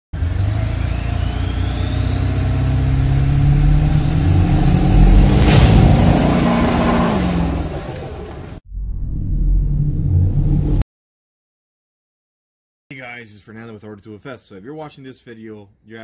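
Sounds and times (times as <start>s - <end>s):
engine revving with turbo whine: 0.1s - 8.6s
sharp whoosh: 3.5s - 10.8s.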